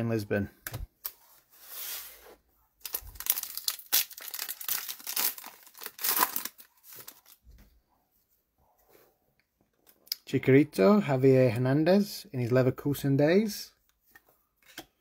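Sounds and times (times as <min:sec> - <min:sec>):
foil pack tearing and crinkling: 0:02.8 - 0:07.4.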